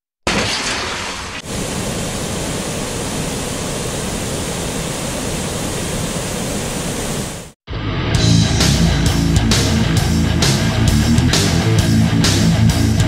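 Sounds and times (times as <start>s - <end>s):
river water rushing: 1.4s - 7.6s.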